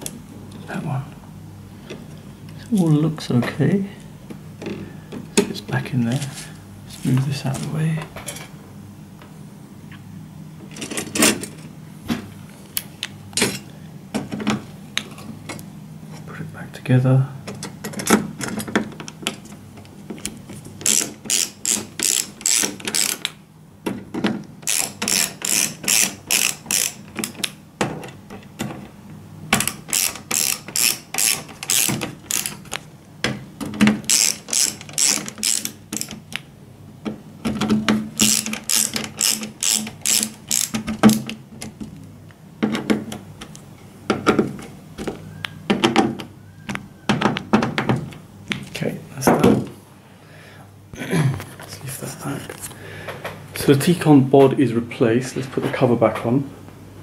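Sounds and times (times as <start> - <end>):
ratcheting screwdriver clicking: 20.8 - 23.3, 24.6 - 27.6, 29.6 - 32.8, 34.1 - 36.2, 38.2 - 41.3.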